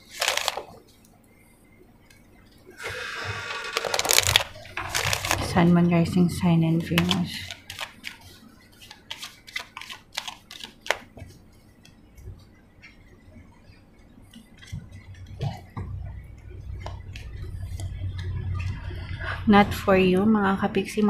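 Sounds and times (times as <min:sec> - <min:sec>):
cards being shuffled: 0:00.0 - 0:00.8, 0:02.8 - 0:05.6, 0:06.9 - 0:11.4
low rumble: 0:04.3 - 0:07.5, 0:15.8 - 0:20.6.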